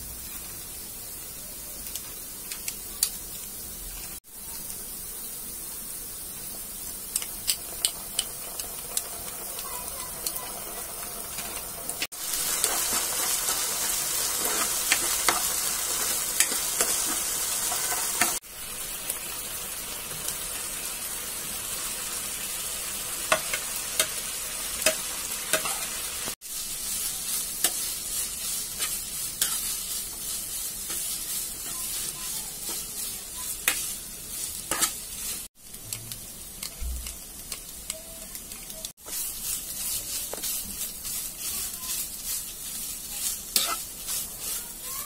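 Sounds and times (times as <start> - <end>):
food sizzling in a frying pan: 0.0 - 45.0
spatula scraping a pan: 12.4 - 18.4, 26.9 - 35.5, 39.0 - 45.0.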